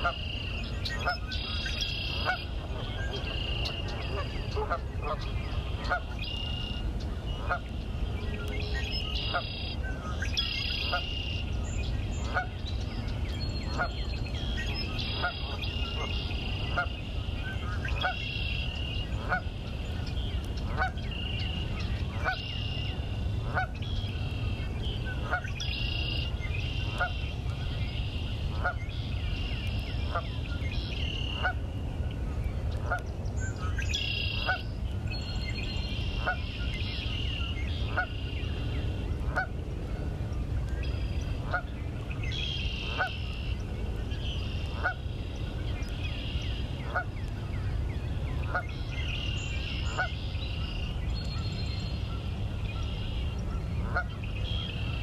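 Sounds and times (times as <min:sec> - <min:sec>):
birds chirping: 0:00.0 - 0:31.6, 0:32.4 - 0:39.5.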